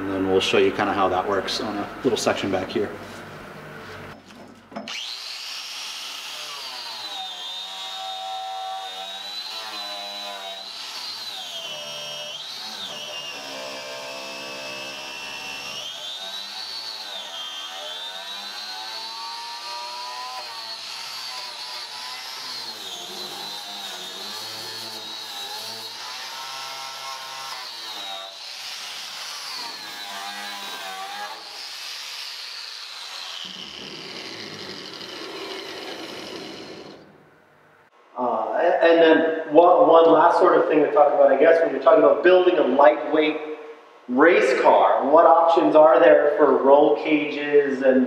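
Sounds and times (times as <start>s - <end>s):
angle grinder wire wheel on metal: 16.2s - 37.0s.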